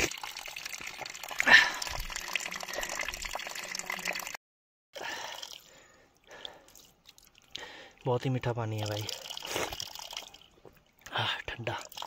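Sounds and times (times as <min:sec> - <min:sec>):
spring water running and splashing: 0:00.0 - 0:04.4.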